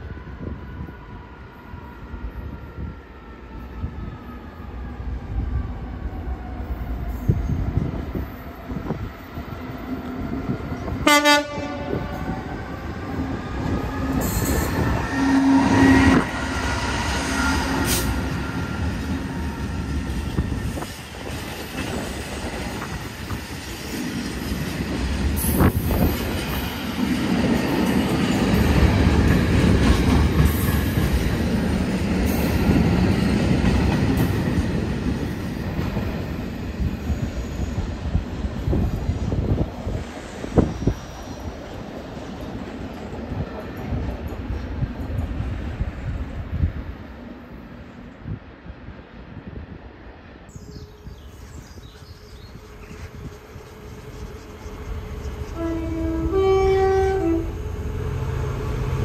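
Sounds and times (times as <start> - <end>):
diesel locomotive engine: 0.0 - 59.0
train horn blast: 11.0 - 12.3, 14.1 - 18.3, 55.5 - 58.2.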